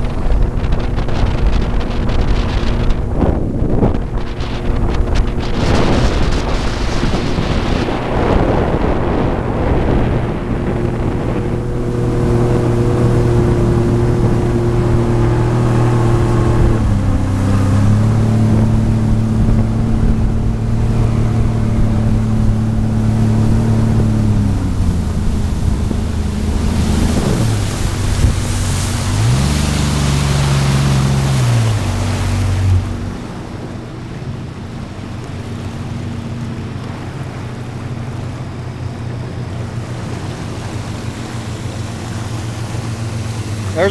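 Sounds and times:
jet ski engine running: 0.0s - 43.9s
water rushing: 0.0s - 43.9s
wind on microphone: 0.0s - 43.9s.

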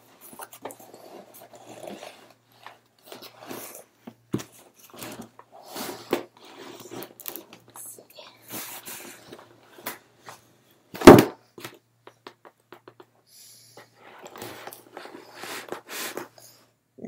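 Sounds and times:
loud thump: 11.0s - 11.4s.

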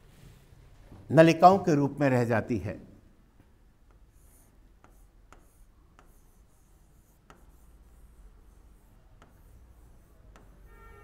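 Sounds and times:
stylus tapping on display board: 3.8s - 6.4s
faint scratchy pen strokes: 3.8s - 11.0s.

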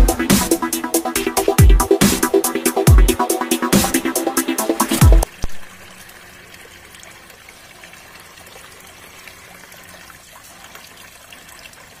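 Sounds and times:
fountain water trickling and dripping: 5.2s - 12.0s.

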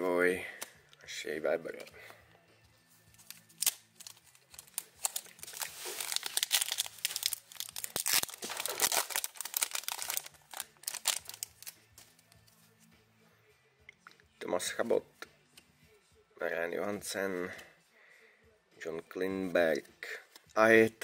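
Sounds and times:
foil wrapper crinkling and tearing: 3.2s - 11.8s.

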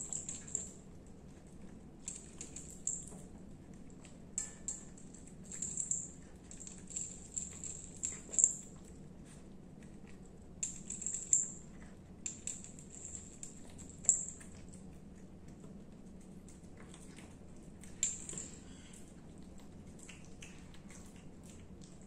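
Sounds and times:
collar bell tinkling: 4.4s - 8.8s
cat chewing wet food: 5.0s - 10.7s, 11.6s - 22.0s.

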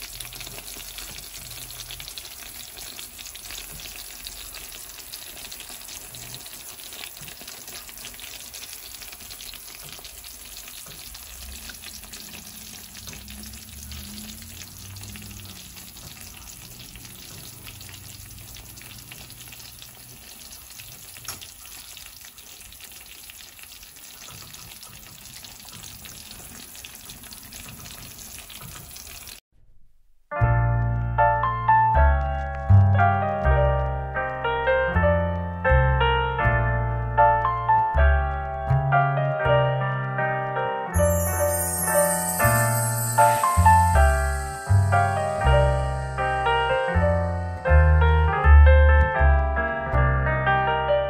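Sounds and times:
cheese sauce sizzling: 0.0s - 29.4s, 30.8s - 51.0s.

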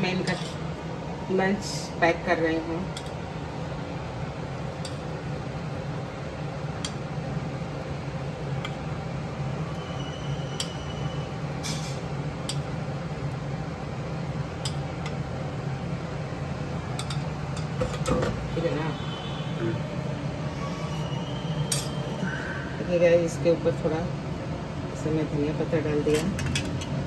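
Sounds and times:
steady low hum: 0.0s - 27.0s
spoon clinking metal dishes: 0.2s - 0.6s, 17.0s - 18.3s, 21.7s - 22.0s.

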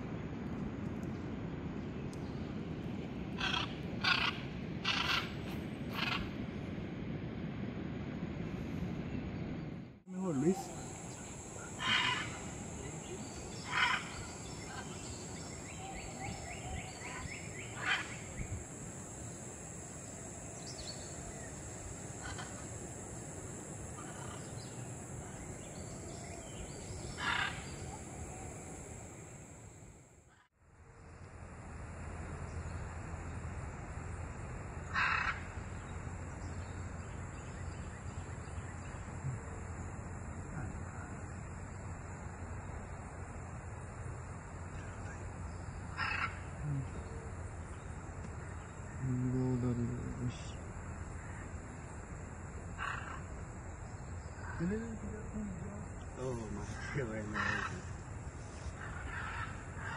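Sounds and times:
high insect drone: 0.0s - 7.4s, 10.1s - 59.9s
macaw squawking: 3.4s - 6.3s, 11.7s - 12.5s, 13.6s - 15.0s, 27.1s - 27.8s, 46.0s - 46.4s, 56.7s - 57.9s.

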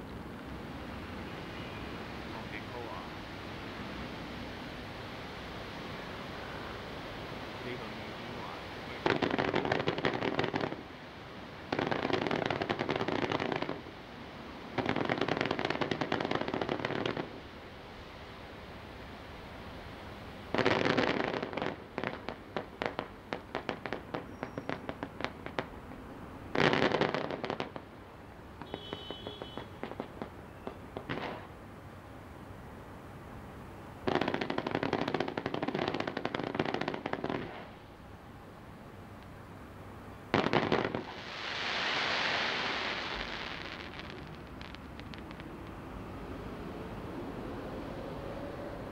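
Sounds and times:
fireworks crackling: 0.0s - 17.8s, 19.8s - 31.6s, 33.6s - 38.1s, 40.1s - 46.0s
fireworks sharp pops: 8.4s - 10.9s, 11.7s - 13.9s, 14.7s - 17.4s, 20.5s - 27.9s, 28.6s - 31.5s, 34.0s - 37.8s, 40.3s - 45.8s.

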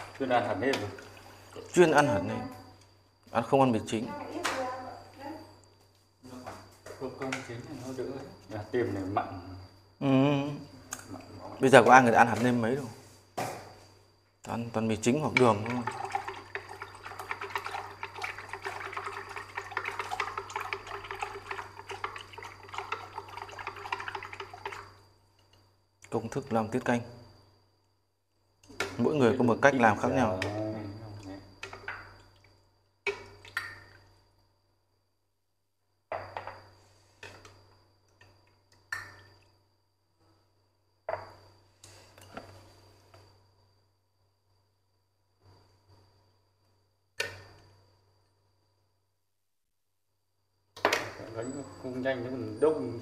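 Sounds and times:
liquid sloshing in bowl: 0.8s - 1.8s, 15.1s - 25.0s.

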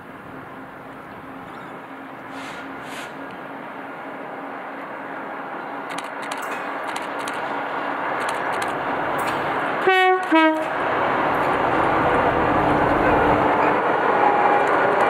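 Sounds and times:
diesel train passing: 0.0s - 15.0s
train horn blasts: 9.8s - 10.8s.

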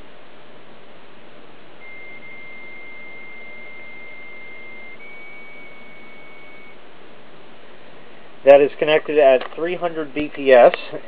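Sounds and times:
modem handshake tones: 1.8s - 6.8s.

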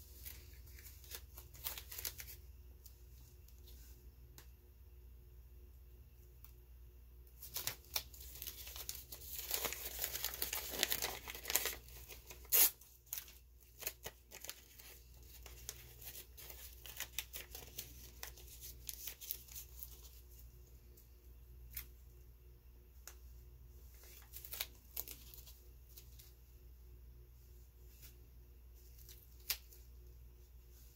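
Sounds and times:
paper crinkling and rustling: 0.0s - 3.9s, 7.4s - 20.4s, 23.8s - 26.4s.

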